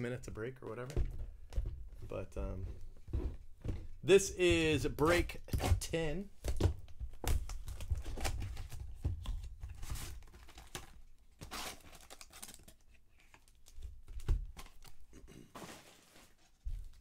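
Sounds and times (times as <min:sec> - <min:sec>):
card packs tapping and clicking: 0:04.5 - 0:17.0
foil packs crinkling: 0:09.8 - 0:12.8.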